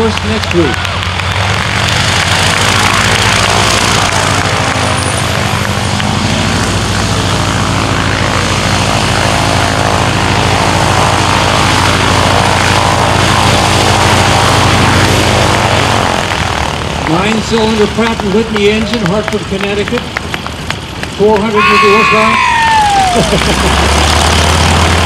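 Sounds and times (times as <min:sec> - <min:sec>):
radial aircraft engine running: 0:00.0 - 0:25.0.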